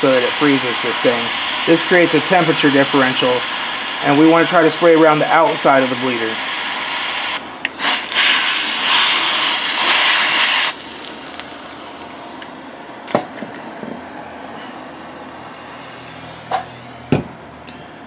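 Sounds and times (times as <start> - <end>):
compressed air spray hissing: 5.8 - 11.1.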